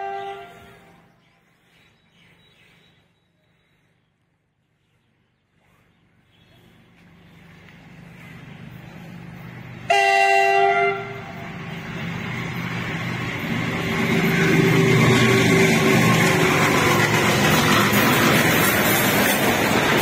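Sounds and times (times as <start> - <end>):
train horn blast: 0.0 - 1.0, 9.9 - 11.4
diesel locomotive rumble: 5.4 - 20.0.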